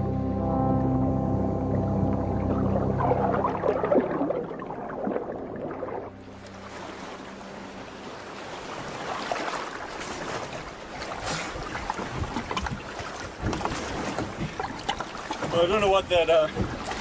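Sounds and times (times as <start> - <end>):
soundtrack music: 0.0 - 9.2
wind: 0.0 - 17.0
water washing: 1.9 - 17.0.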